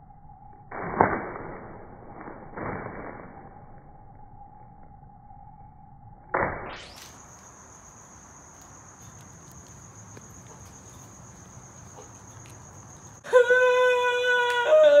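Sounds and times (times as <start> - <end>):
cricket trilling: 6.8 - 15.0
person's long held cry: 13.2 - 15.0.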